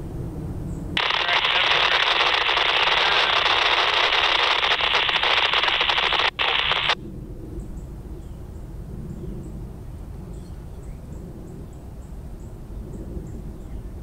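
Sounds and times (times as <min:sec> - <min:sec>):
radio static hiss: 0:01.0 - 0:07.0.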